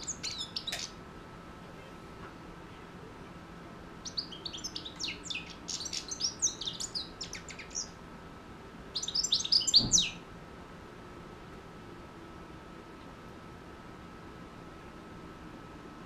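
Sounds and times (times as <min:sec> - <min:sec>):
goldfinch twittering: 0:00.0 - 0:01.0, 0:04.0 - 0:08.0, 0:09.0 - 0:10.2.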